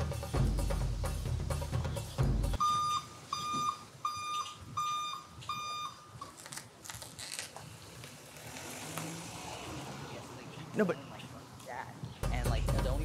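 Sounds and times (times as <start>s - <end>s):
music track with drums: 0.0s - 2.6s, 12.2s - 13.0s
high-pitched electronic beeps: 2.6s - 6.3s.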